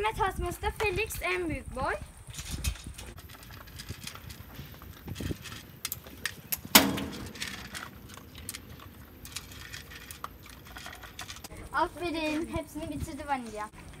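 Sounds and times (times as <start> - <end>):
loud clack: 6.7 - 7.7
dog crunching dry kibble: 7.3 - 11.5.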